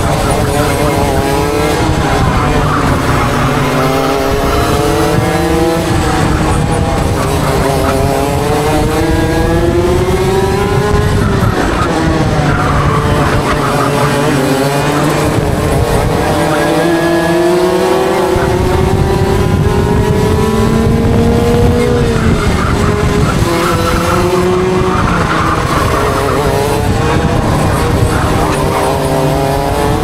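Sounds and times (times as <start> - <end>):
kart engines at full throttle: 0.0 - 30.0.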